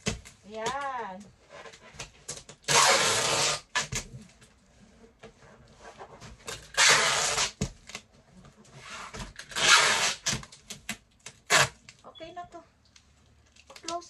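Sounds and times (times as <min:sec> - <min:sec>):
packing tape ripping off roll: 0:02.0 - 0:04.2, 0:06.5 - 0:08.0, 0:09.1 - 0:12.0.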